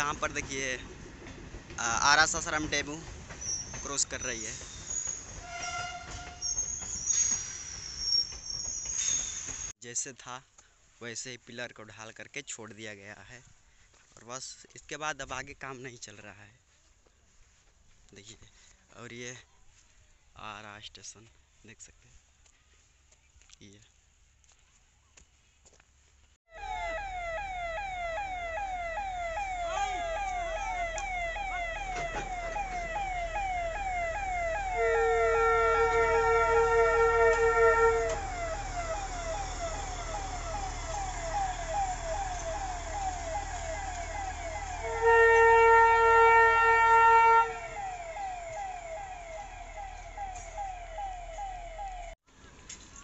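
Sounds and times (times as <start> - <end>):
long steady horn blasts: 5.4 - 6.4, 26.5 - 51.0
rising whoop warning siren: 26.5 - 52.2.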